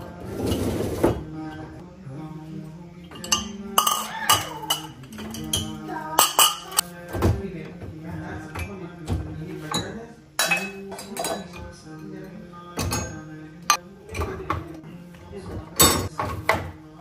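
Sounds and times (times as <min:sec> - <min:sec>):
background music: 0:00.0 - 0:17.0
glass and ceramic bowls clinking: 0:03.0 - 0:06.8, 0:09.4 - 0:14.8, 0:15.8 - 0:16.4.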